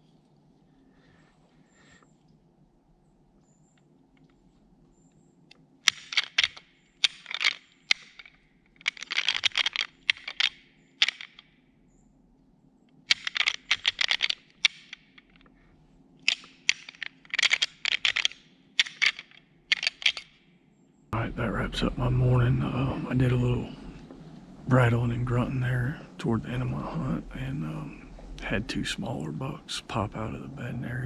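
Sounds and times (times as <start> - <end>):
antlers clashing and clacking: 16.3 - 20.3.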